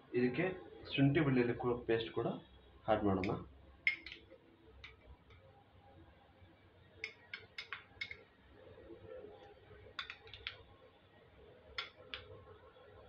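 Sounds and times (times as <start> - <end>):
metal spoon clinking on glass: 3.2 - 4.3, 7.0 - 8.2.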